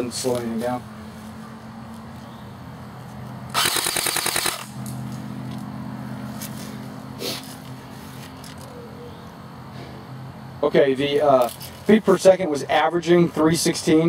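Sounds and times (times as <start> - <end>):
airsoft gun full-auto burst: 3.5 - 4.7.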